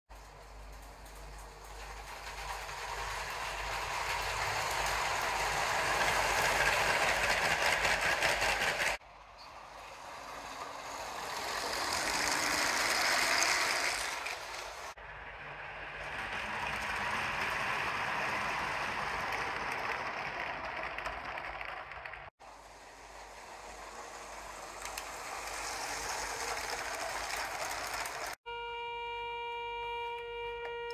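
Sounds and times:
toy train wheels rattling: 0:00.1 - 0:09.0, 0:09.8 - 0:15.0, 0:16.0 - 0:28.4.

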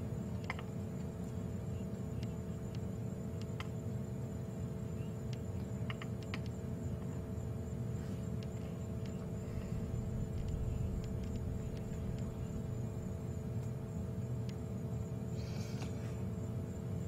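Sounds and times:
steady hum: 0:00.0 - 0:17.0
low rumble: 0:09.2 - 0:13.9
faint sharp chewing clicks: 0:10.3 - 0:12.4.

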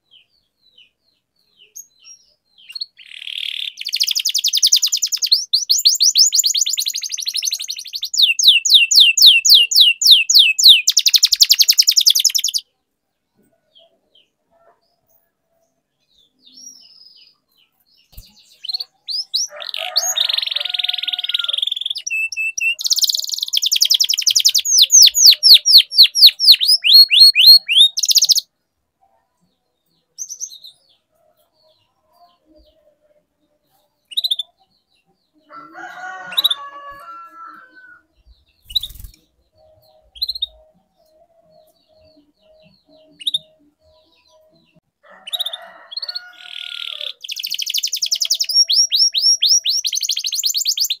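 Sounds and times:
canary chirps: 0:00.0 - 0:12.7, 0:13.6 - 0:28.5, 0:29.5 - 0:51.0
canary singing: 0:01.6 - 0:12.6, 0:16.2 - 0:28.5, 0:30.1 - 0:33.0, 0:33.7 - 0:51.0.

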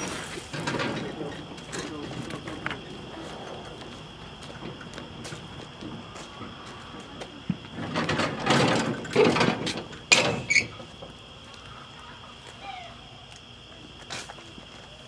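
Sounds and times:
cart set down knocks: 0:00.0 - 0:02.9, 0:07.4 - 0:11.1
plastic cart rattling over pavement: 0:00.0 - 0:11.1.

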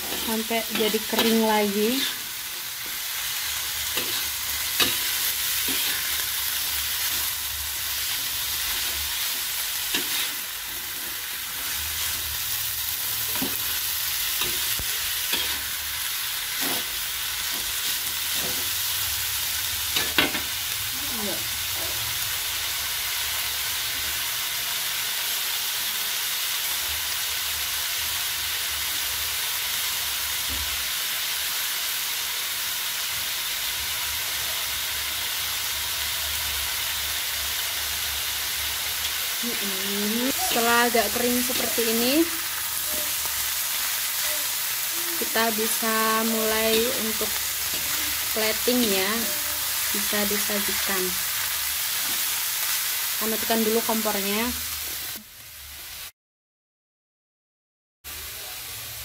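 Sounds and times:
metal spatula scraping: 0:00.0 - 0:12.2, 0:12.8 - 0:15.8, 0:16.5 - 0:18.7, 0:46.4 - 0:50.4
food sizzling in a wok: 0:00.0 - 0:56.1, 0:58.1 - 0:59.0.

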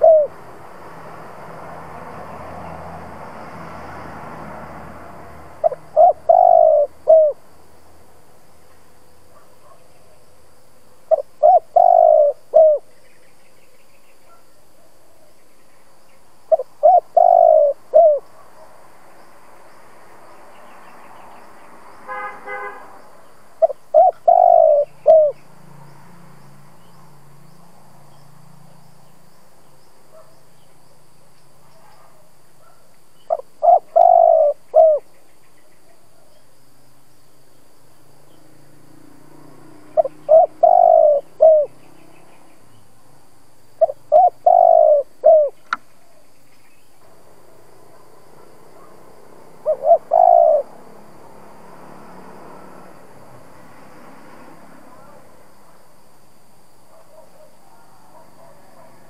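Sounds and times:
dove cooing: 0:00.0 - 0:00.4, 0:05.6 - 0:07.4, 0:11.1 - 0:12.9, 0:16.5 - 0:18.4, 0:23.6 - 0:25.4, 0:32.6 - 0:35.1, 0:40.0 - 0:41.8, 0:43.8 - 0:46.1, 0:49.6 - 0:50.9.

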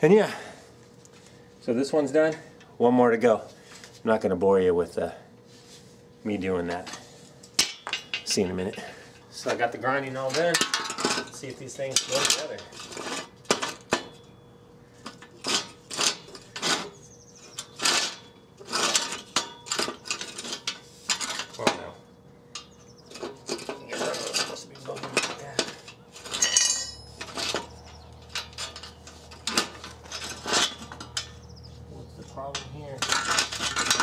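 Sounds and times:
metal rails clanking: 0:09.6 - 0:14.4, 0:15.0 - 0:31.5, 0:32.2 - 0:34.0
metal rattle: 0:10.0 - 0:14.4, 0:15.0 - 0:31.6, 0:32.2 - 0:34.0.

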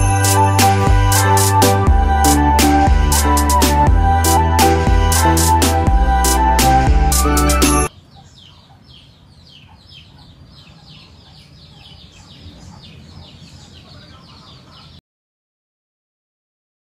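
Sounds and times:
background music: 0:00.0 - 0:07.9
high chirping bird calls: 0:07.6 - 0:15.0.

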